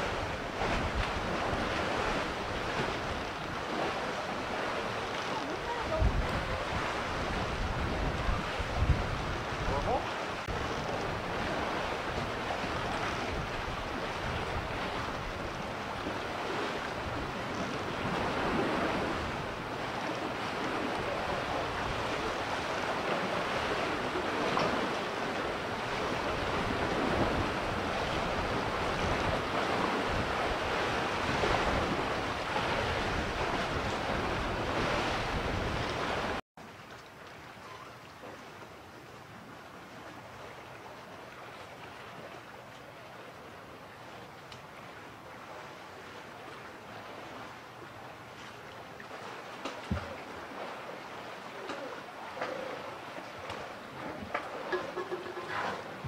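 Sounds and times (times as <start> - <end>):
wind rumbling on microphone: 0.0 - 36.4
sea water lapping: 0.0 - 56.0.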